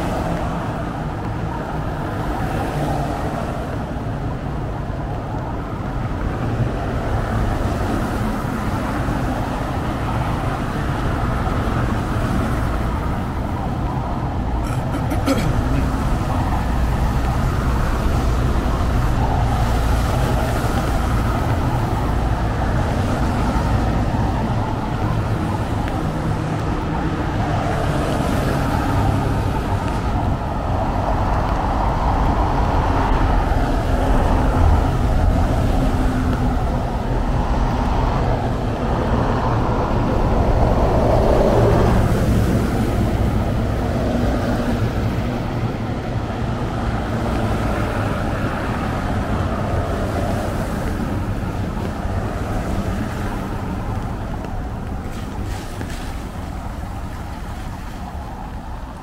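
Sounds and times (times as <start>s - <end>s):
cars passing on wet road: 0.0s - 59.0s.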